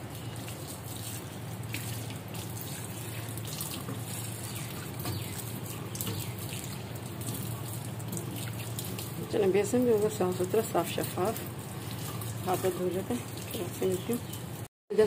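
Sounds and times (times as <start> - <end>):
water splashing over hands: 0.0 - 14.4.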